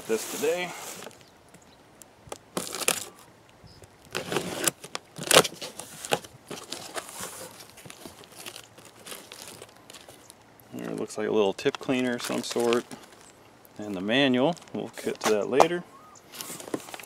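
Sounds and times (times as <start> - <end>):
packing tape ripping: 2.3 - 3.2, 4.1 - 10.2
cardboard flaps rustling: 2.6 - 3.1, 4.1 - 10.2, 10.9 - 13.3, 16.3 - 17.0.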